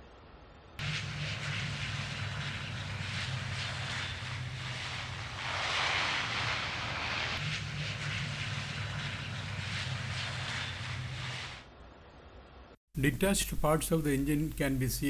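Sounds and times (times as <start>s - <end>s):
jet engine hum: 0.8s - 11.8s
rushing air noise: 0.8s - 12.8s.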